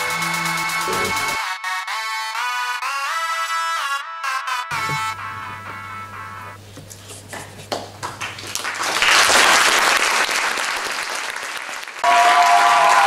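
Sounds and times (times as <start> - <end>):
audience applause: 7.4 - 13.0.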